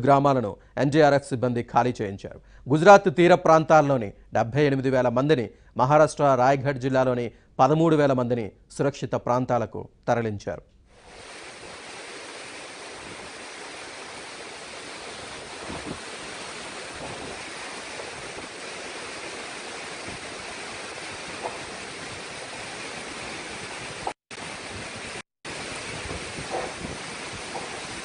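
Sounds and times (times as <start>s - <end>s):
rain: 11.0s - 28.0s
rough surf: 11.0s - 28.0s
strong wind: 11.2s - 28.0s.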